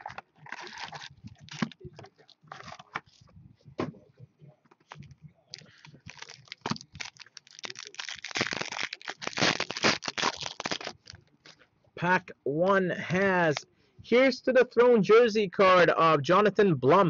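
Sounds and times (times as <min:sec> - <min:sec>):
foil pack tearing and crinkling: 0:00.0 - 0:01.8, 0:05.6 - 0:11.2.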